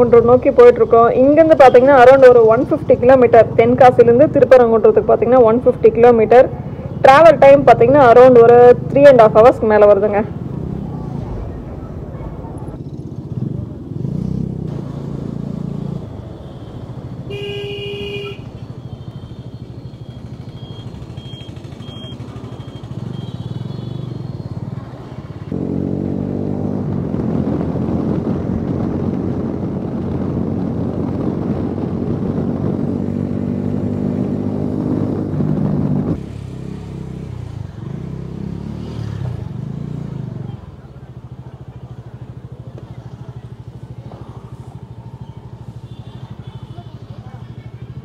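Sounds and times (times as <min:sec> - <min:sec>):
motorcycle engine running: 0:12.4 - 0:48.0
vehicle horn: 0:17.3 - 0:19.5.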